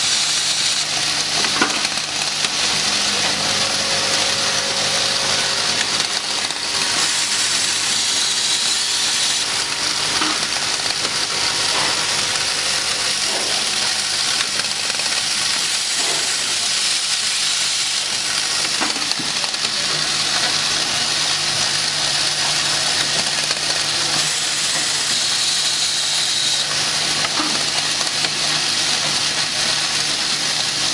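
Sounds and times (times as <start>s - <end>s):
low machine hum: 0.0s - 17.2s
machine hissing: 0.0s - 30.9s.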